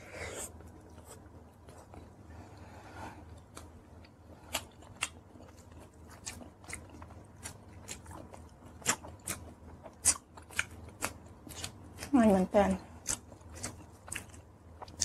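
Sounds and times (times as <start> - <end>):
chewing crunches: 3.3 - 12.1, 13.0 - 15.0.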